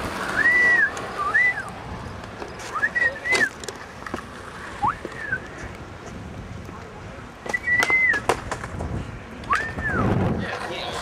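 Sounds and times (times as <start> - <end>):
gliding whistled notes: 0.2 - 1.7.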